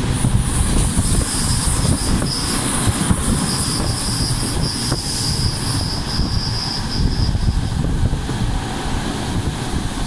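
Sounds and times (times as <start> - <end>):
rushing air: 0.0 - 10.0
train wheels rumbling on rail: 0.0 - 10.0
high-pitched wheel squeal: 0.6 - 8.0.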